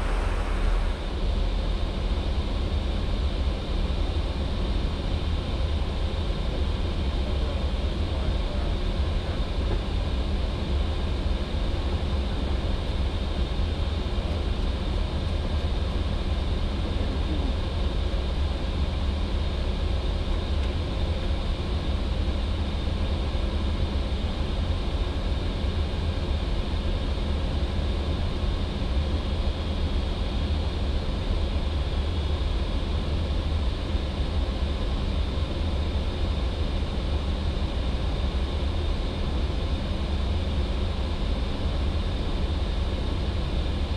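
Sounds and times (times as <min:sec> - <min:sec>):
rush of air: 0:00.0 - 0:01.2
low rumble: 0:00.0 - 0:02.0
faint high whine: 0:00.0 - 0:04.2.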